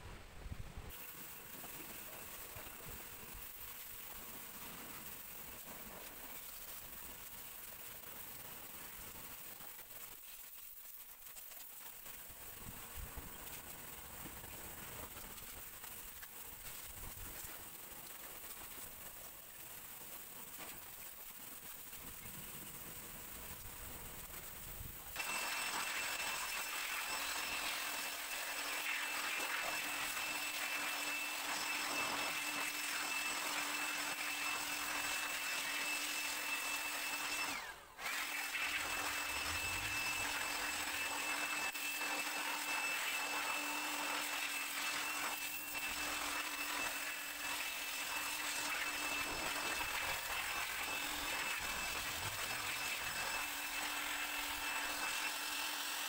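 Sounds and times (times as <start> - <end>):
electric air blower whining: 25.1 - 56.0.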